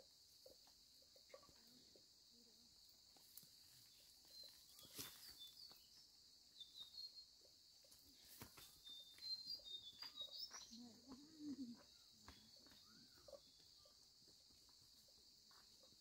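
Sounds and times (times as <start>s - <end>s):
footsteps on dirt path: 3.9s - 6.0s, 7.8s - 16.0s.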